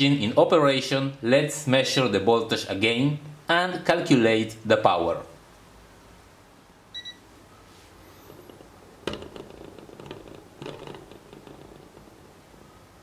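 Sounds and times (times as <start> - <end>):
short electronic beeps: 6.9 - 7.2
clicking and knocking on plastic: 8.4 - 12.6.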